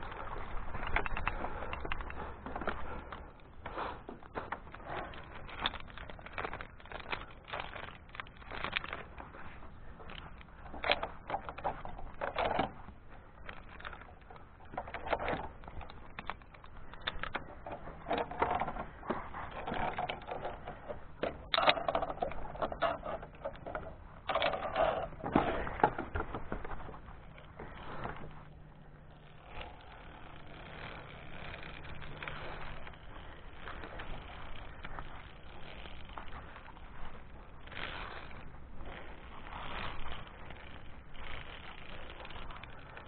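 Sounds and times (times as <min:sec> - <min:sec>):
metal climbing gear clicking: 0:00.0 - 0:43.0.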